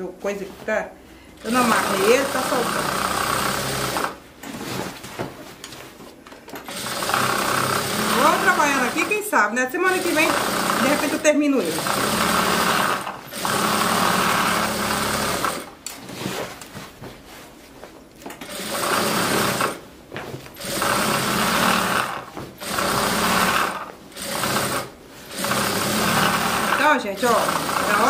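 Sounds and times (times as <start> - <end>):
sewing machine stitching: 1.4 - 4.6, 6.6 - 15.8, 18.4 - 19.8, 20.5 - 28.0.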